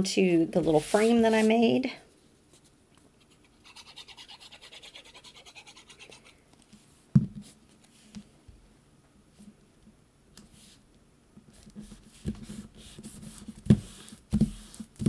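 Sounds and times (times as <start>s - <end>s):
scratchy rubbing on paper: 3.2s - 6.4s, 11.8s - 14.8s.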